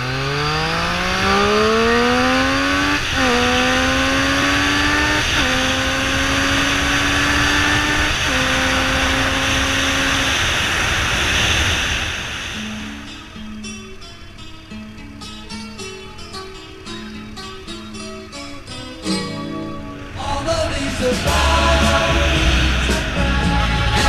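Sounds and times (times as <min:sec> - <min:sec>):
vehicle engine accelerating: 0:00.0 - 0:13.6, 0:19.8 - 0:24.0
wind and road noise: 0:00.0 - 0:24.0.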